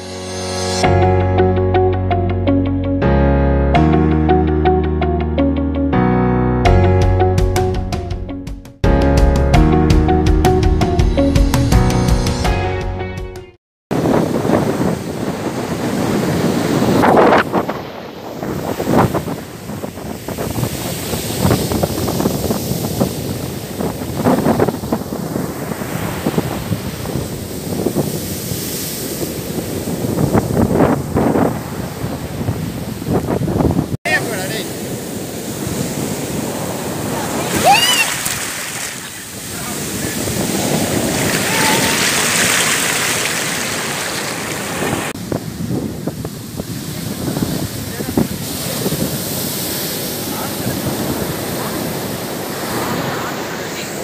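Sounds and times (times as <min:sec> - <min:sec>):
surf breaking on beach: 0:13.9 - 0:54.0
wind buffeting microphone: 0:13.9 - 0:54.0.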